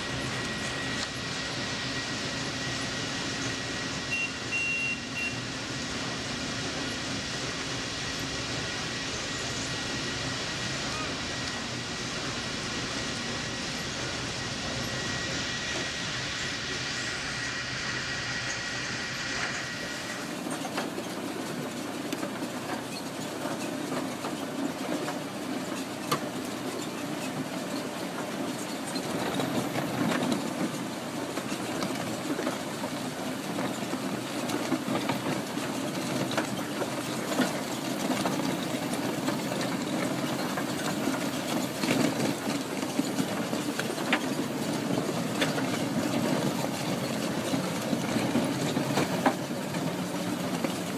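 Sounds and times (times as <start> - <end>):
steady high whine: 0.0 - 22.8.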